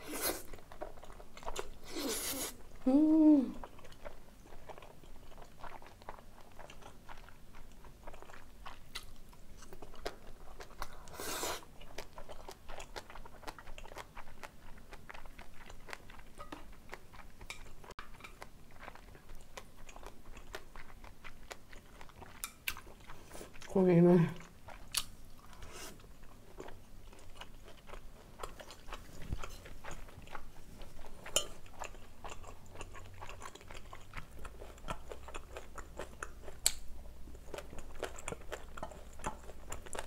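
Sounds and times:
close chewing noodles: 0.0s - 40.0s
person humming: 2.0s - 3.6s.

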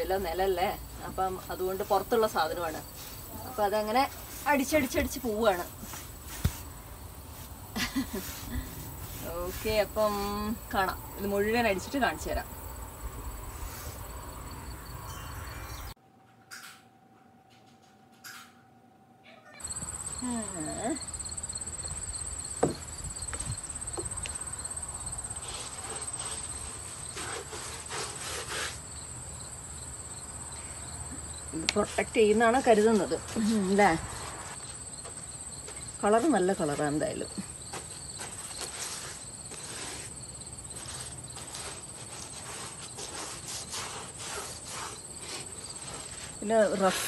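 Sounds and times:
pulsing insect chirp: 0.0s - 16.0s, 19.5s - 27.2s
paintbrush strokes on wood: 0.1s - 12.4s, 25.4s - 28.8s, 38.2s - 47.0s
knock: 22.6s - 22.8s.

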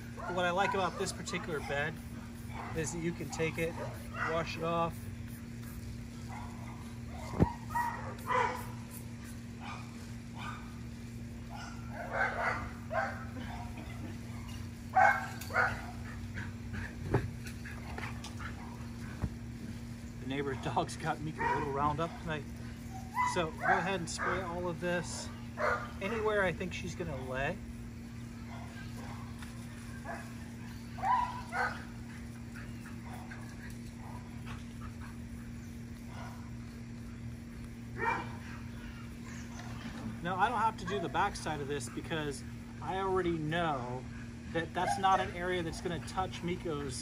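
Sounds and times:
dog barking: 0.2s - 1.8s, 2.5s - 4.6s, 6.3s - 8.8s, 9.6s - 10.7s, 11.5s - 13.9s, 14.9s - 16.2s, 21.4s - 22.4s, 25.6s - 26.2s, 28.5s - 29.3s, 30.0s - 31.9s, 36.1s - 36.5s, 38.0s - 38.6s
dog yipping: 6.3s - 8.7s, 30.0s - 31.8s, 38.0s - 39.8s.

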